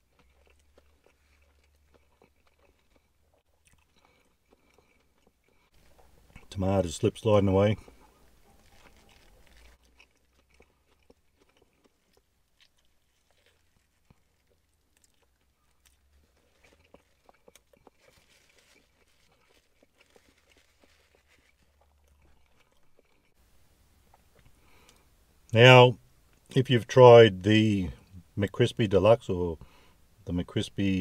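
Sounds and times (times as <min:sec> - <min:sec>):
chewing crispy food: 0:00.0 - 0:23.4, 0:24.0 - 0:25.1.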